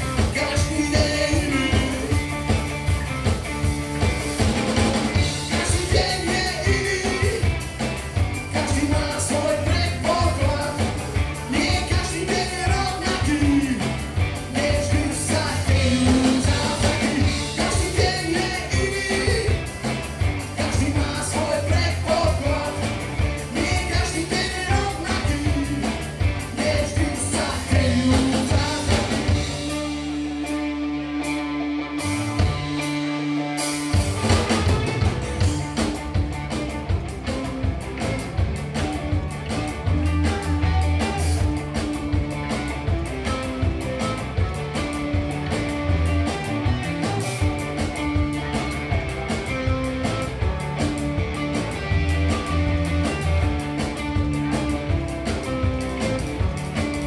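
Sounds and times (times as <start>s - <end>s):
live rock band: 0.0s - 57.0s
person singing: 0.3s - 2.1s, 5.4s - 7.6s, 8.5s - 10.9s, 11.5s - 19.7s, 20.6s - 29.4s.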